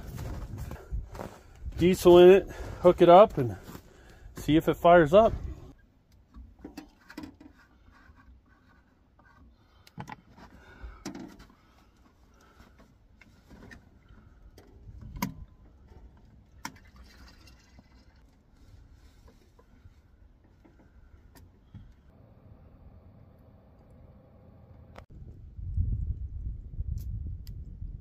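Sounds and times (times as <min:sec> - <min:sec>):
clicks knocks and scraping: 0:06.2 - 0:16.8.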